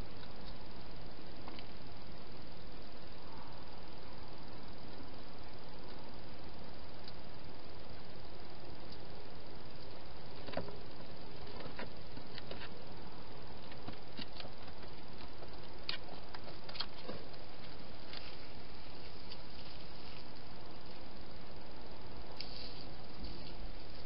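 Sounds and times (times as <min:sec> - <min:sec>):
steady hiss: 0:00.0 - 0:24.0
small clicks and crunches: 0:13.6 - 0:18.4.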